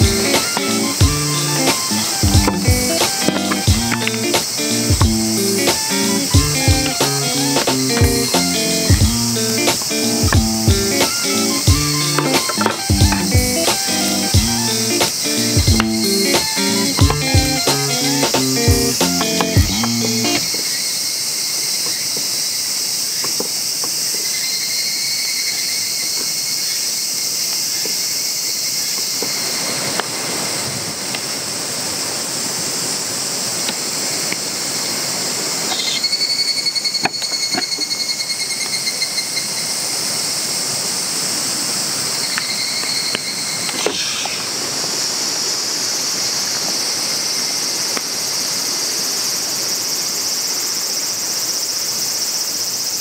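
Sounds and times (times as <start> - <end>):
pulsing buzzing call: 0.0 - 20.5
insects droning: 0.0 - 53.0.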